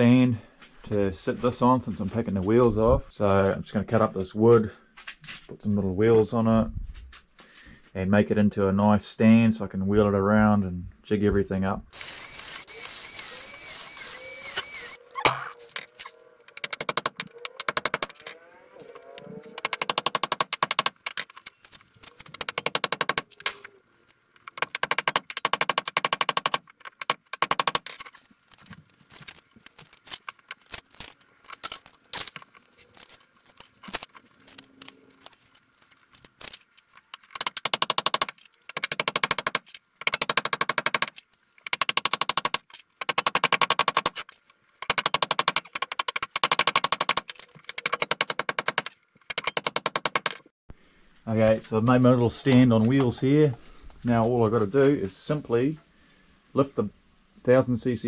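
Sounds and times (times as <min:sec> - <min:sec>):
drill driving screws: 0:11.9 - 0:18.3.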